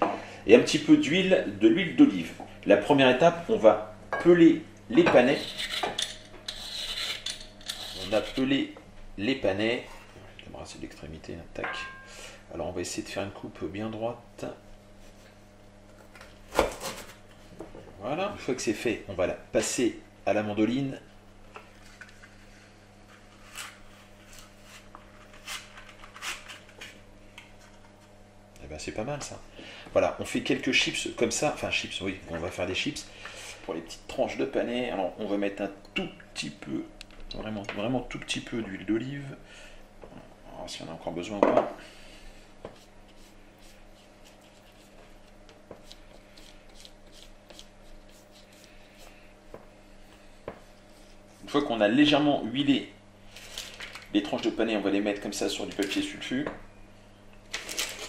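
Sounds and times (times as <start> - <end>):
pastry brush scratchy strokes: 6.5 - 8.5, 42.7 - 45.2, 45.8 - 49.3.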